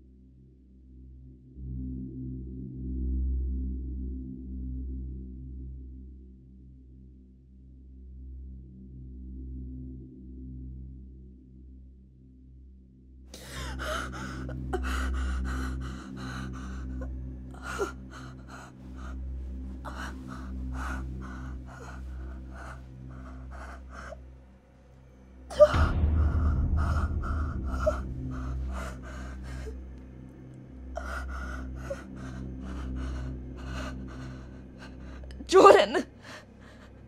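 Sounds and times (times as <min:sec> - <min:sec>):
woman panting: 0:13.4 - 0:24.2, 0:25.5 - 0:30.0, 0:31.0 - 0:37.0
low steady drone: 0:13.4 - 0:37.0
loud low rumble: 0:25.4 - 0:35.4.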